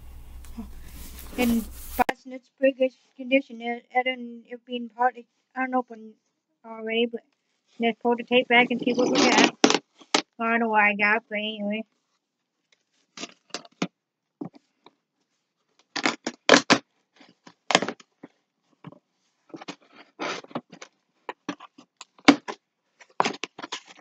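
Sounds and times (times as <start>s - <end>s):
cardboard scraping and rustling: 0.4s - 2.1s
packing tape ripping off cardboard: 16.0s - 16.8s.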